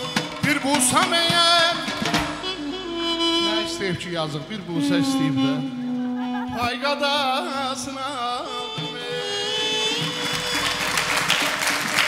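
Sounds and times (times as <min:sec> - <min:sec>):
saz melody: 0:00.0 - 0:12.0
applause: 0:10.0 - 0:12.0.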